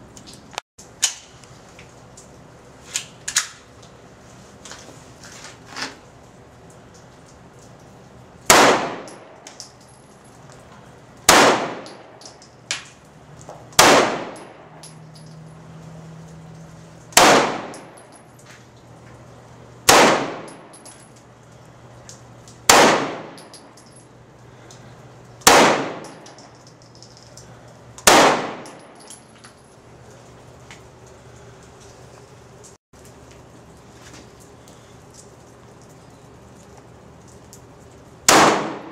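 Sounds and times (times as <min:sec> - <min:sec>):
gunshots with ringing echo: 0:08.5 - 0:09.4, 0:11.3 - 0:12.2, 0:13.8 - 0:14.7, 0:17.2 - 0:18.0, 0:19.9 - 0:20.7, 0:22.7 - 0:23.4, 0:25.4 - 0:26.3, 0:28.0 - 0:29.0, 0:38.3 - 0:38.9.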